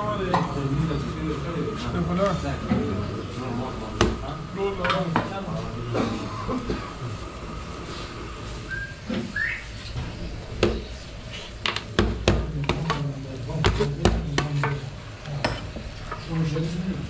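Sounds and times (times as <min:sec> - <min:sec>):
murmur of voices: 0:00.0 - 0:09.5.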